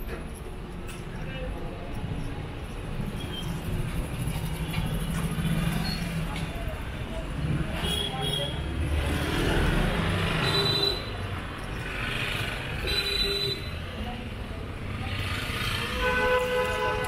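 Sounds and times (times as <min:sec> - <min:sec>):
vehicle engines passing: 0:00.0 - 0:17.0.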